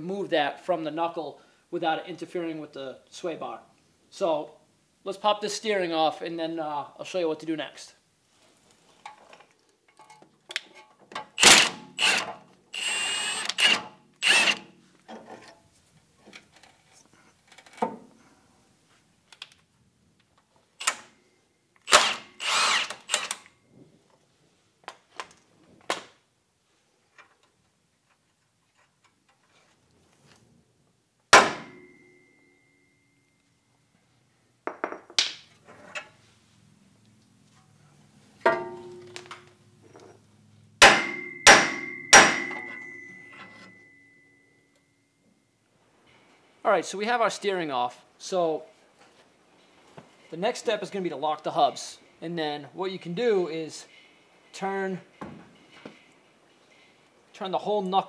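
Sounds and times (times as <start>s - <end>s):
tools clanking on metal: 9.0s - 11.3s, 38.4s - 40.2s, 41.0s - 43.8s
ringing metal strike: 31.6s - 33.2s, 38.5s - 39.2s, 40.8s - 45.2s.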